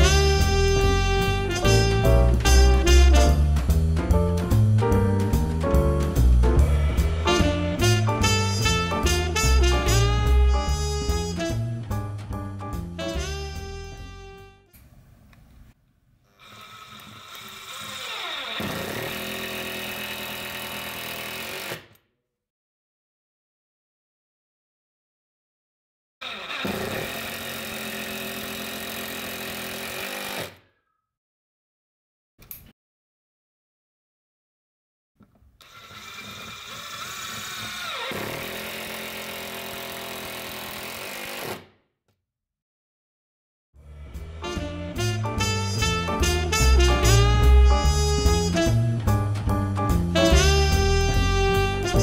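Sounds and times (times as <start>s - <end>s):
impact driver driving screw: 26.2s - 30.6s, 35.6s - 41.7s.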